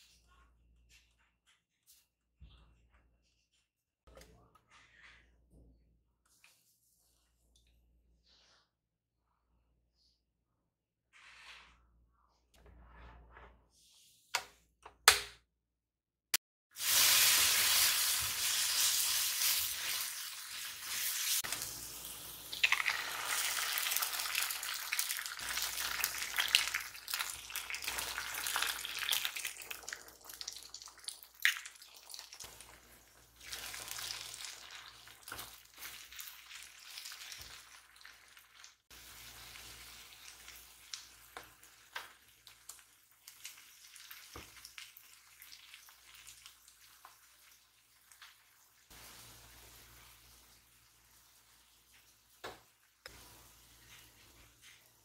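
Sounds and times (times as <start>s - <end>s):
food sizzling in oil: 16.8s - 55.0s.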